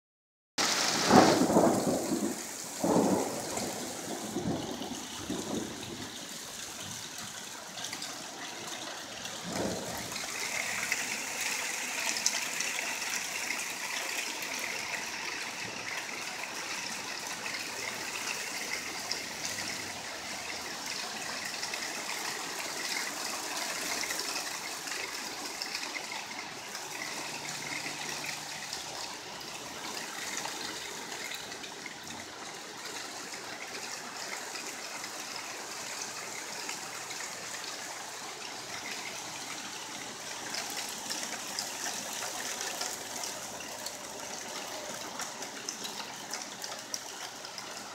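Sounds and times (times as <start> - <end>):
hailstones falling on wood: 0.6 - 4.6.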